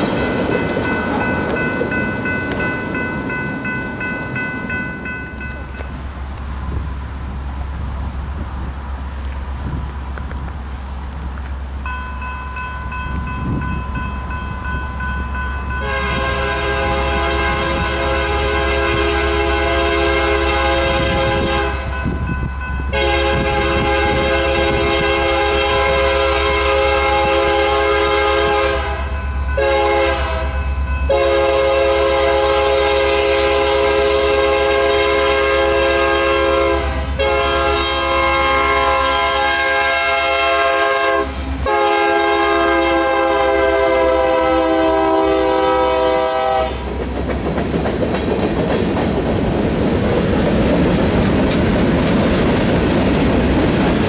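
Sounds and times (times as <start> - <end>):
train air horn blasts: 15.7 - 22.0, 22.9 - 46.9.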